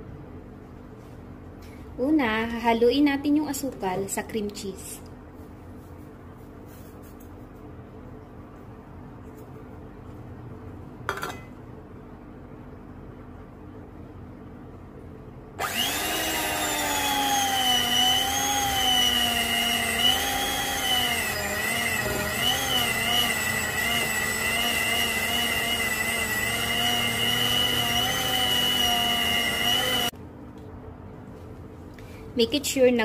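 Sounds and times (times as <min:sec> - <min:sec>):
electric hand mixer whining: 0:15.6 - 0:30.1.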